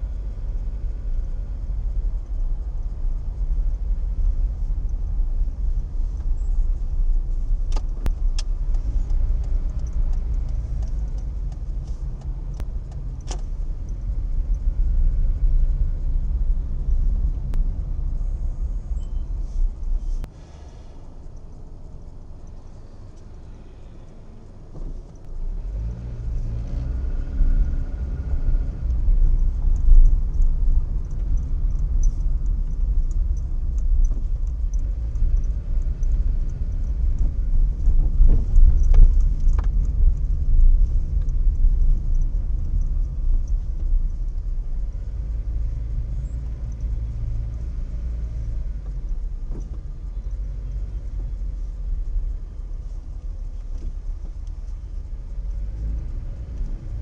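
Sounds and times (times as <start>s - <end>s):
car engine and tyres rumbling: 0.0s - 57.0s
faint clicks: 27.4s - 57.0s.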